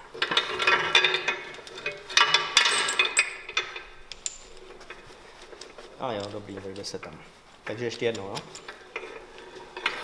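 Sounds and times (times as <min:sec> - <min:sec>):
steel chain clinking and rattling: 0:00.0 - 0:05.0.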